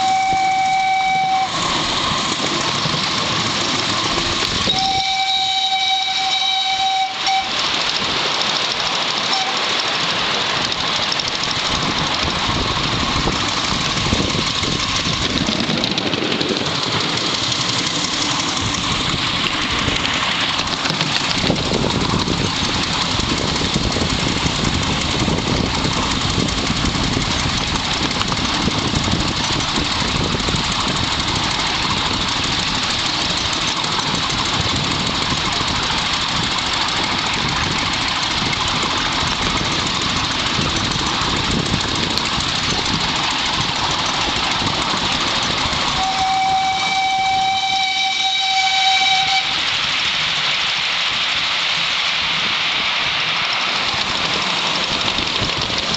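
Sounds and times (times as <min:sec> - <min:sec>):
train whistle: 0:00.0 - 0:02.4, 0:04.6 - 0:07.9, 0:09.3 - 0:09.8, 0:45.9 - 0:49.7
miniature train rumbling on rails: 0:00.0 - 0:55.9.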